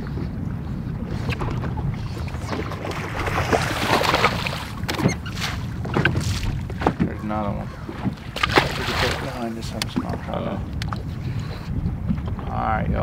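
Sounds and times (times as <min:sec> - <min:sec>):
wind and water rumble: 0:00.0 - 0:13.0
fish thrashing and splashing: 0:01.0 - 0:07.0, 0:07.7 - 0:10.1.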